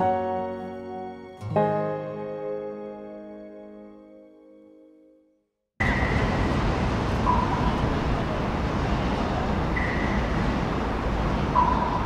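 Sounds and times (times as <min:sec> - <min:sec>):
city traffic rumble: 0:05.8 - 0:12.0.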